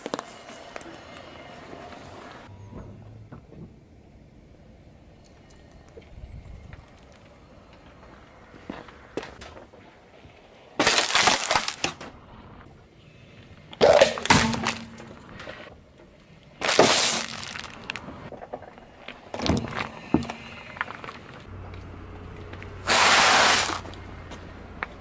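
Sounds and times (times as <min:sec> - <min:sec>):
plastic cup breaking: 0:10.8 - 0:12.0
tyre crushing objects: 0:10.8 - 0:12.0, 0:16.6 - 0:18.0.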